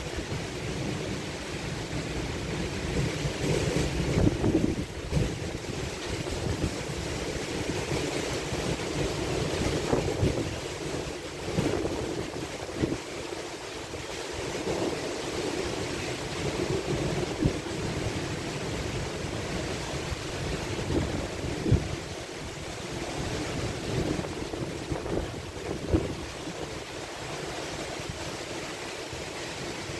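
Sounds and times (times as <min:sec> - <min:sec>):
gusting wind: 0:00.0 - 0:29.9
heavy rain: 0:00.0 - 0:29.9
wind buffeting microphone: 0:02.9 - 0:13.0, 0:19.6 - 0:26.9.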